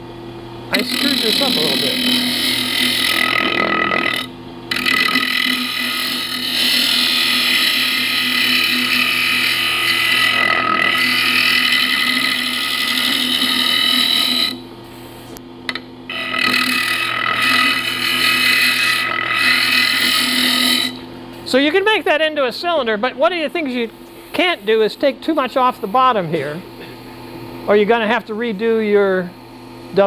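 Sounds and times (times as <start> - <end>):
lathe humming: 0.6 - 30.0
scraper cutting wood on lathe: 0.7 - 14.6, 16.1 - 21.0.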